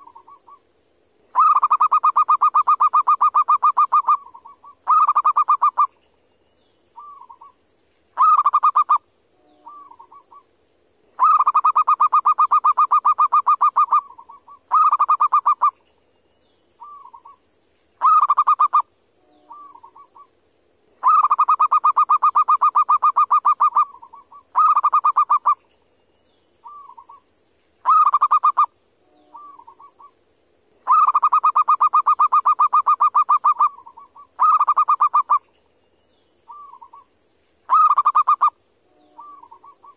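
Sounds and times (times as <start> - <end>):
dove cooing: 1.4 - 5.9, 8.2 - 9.0, 11.2 - 15.7, 18.0 - 18.8, 21.0 - 25.6, 27.8 - 28.7, 30.9 - 35.4, 37.7 - 38.5, 39.1 - 39.9.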